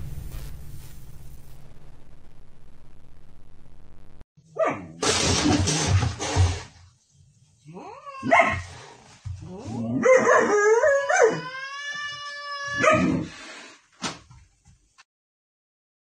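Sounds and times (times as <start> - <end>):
dog whining and howling: 9.7 - 13.3.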